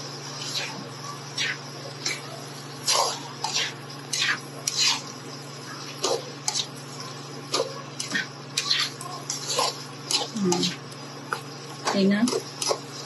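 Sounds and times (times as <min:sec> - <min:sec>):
spatula scraping a pan: 0:02.8 - 0:11.4, 0:12.3 - 0:13.0.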